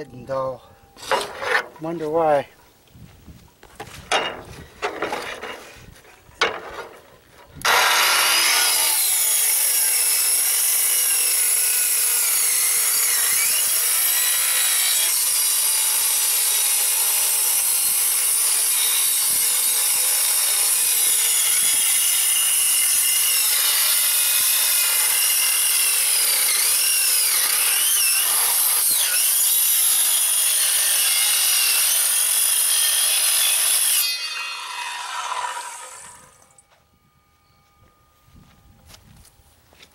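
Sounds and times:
circular saw cutting metal: 7.6 - 36.7.

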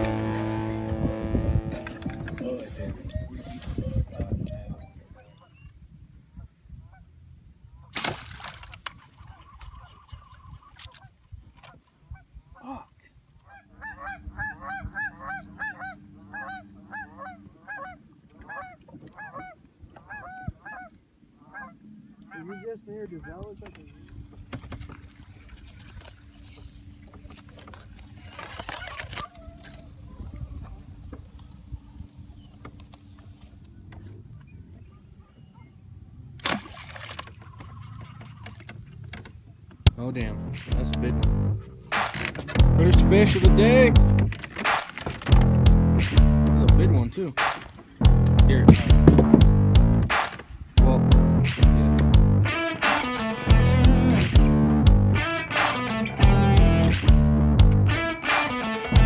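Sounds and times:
low steady rumble: 0.0 - 2.3, 39.9 - 41.8, 42.6 - 44.3, 50.8 - 52.5
arrow snapping into water: 7.9 - 9.0, 36.4 - 37.4, 44.5 - 45.2, 47.4 - 47.8, 50.1 - 50.4
geese honking: 13.4 - 23.4.

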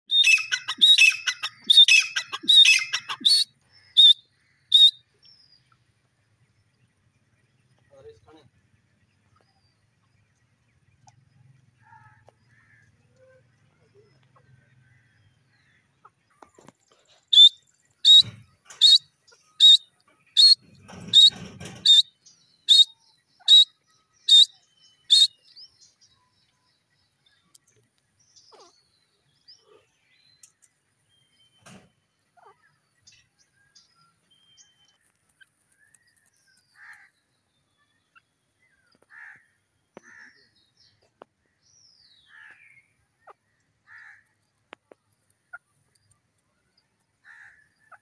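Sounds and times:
francolin calling: 0.1 - 5.1, 17.2 - 25.5.

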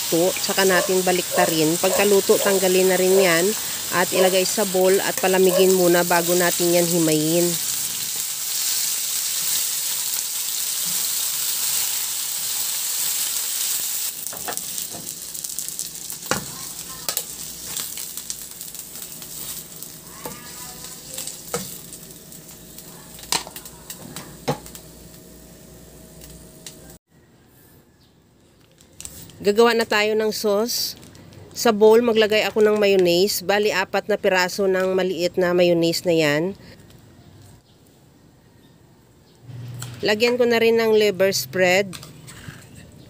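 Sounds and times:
chicken sizzling in hot oil: 0.0 - 25.6.

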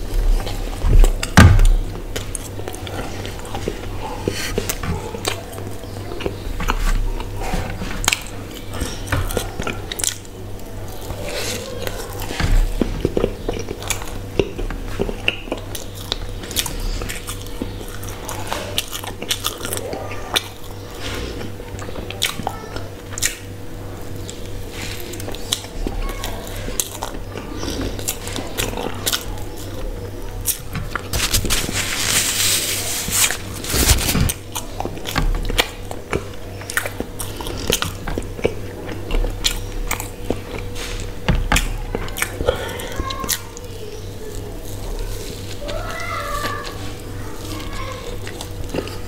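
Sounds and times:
chewing with wet mouth clicks: 8.0 - 23.5, 34.3 - 43.7, 47.4 - 49.0.

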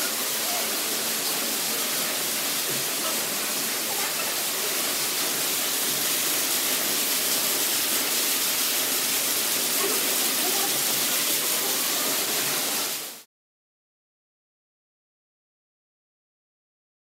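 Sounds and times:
waterfall pouring: 0.0 - 13.3.

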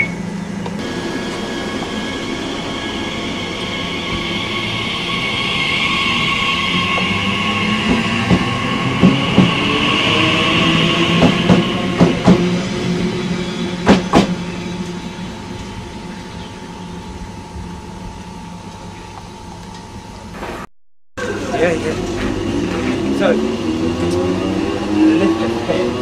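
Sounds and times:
electric train whine: 0.0 - 26.0.

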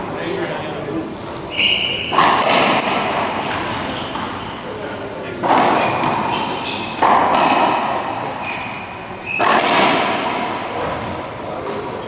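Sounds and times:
sneakers squeaking on floor: 1.3 - 4.7, 5.5 - 12.0
ball smacking racquets and walls: 1.9 - 4.6, 5.3 - 12.0.

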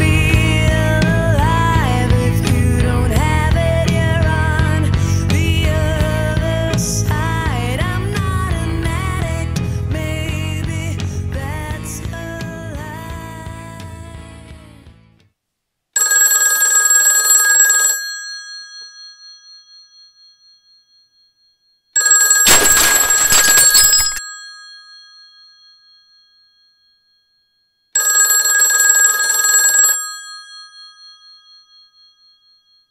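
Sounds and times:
telephone bell ringing: 16.0 - 32.9
clattering noise: 22.4 - 24.2.

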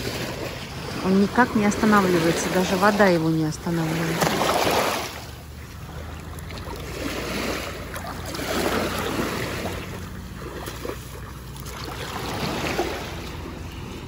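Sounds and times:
small waves washing on sand: 0.0 - 14.0.

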